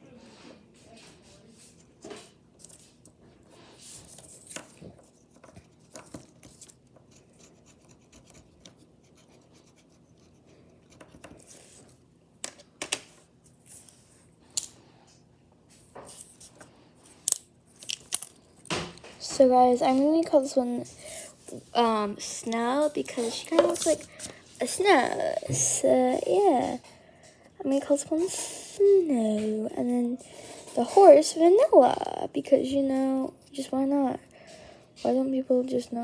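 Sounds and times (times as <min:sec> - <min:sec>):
plastic toys scratching: 0:22.2 - 0:25.7.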